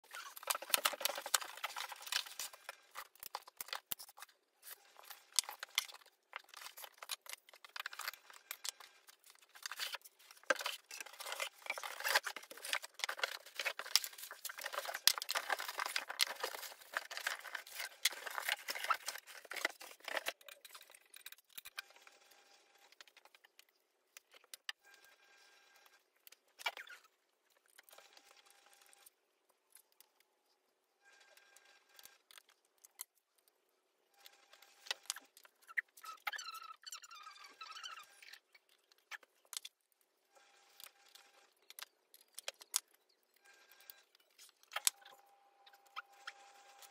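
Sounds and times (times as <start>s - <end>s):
sped-up packaging rustling: 0.0s - 21.7s.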